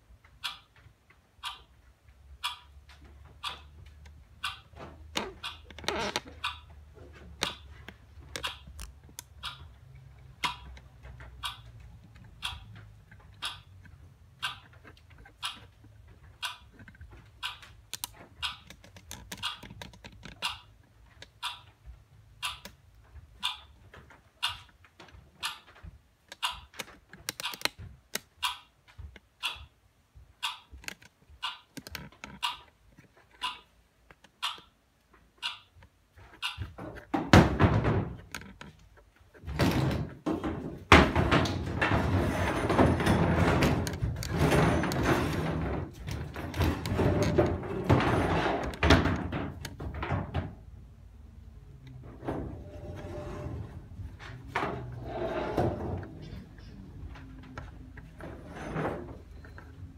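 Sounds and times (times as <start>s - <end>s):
sharp clicks and taps: 7.4s - 37.1s.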